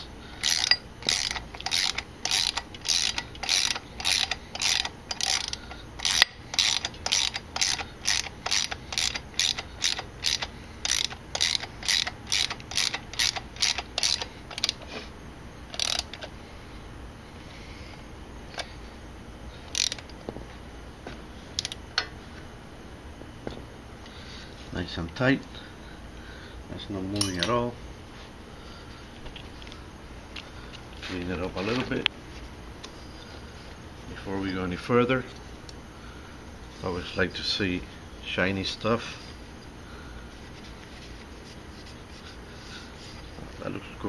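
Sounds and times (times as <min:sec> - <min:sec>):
socket ratchet clicking: 0:00.4 - 0:14.8, 0:15.7 - 0:16.3, 0:19.7 - 0:20.2, 0:21.6 - 0:21.8.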